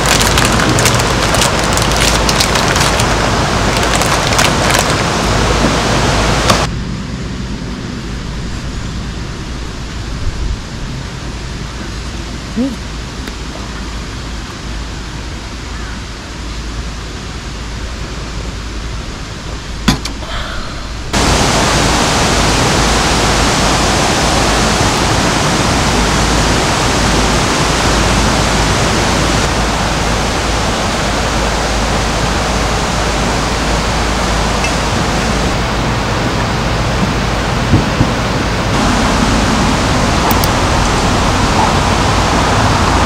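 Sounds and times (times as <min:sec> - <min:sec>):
running water rushing: 0:00.0 - 0:06.7, 0:21.1 - 0:43.0.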